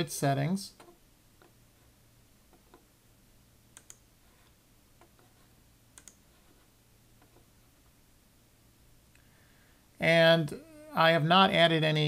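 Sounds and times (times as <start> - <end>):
faint computer mouse clicks: 3.8 - 4.0, 6.0 - 6.2.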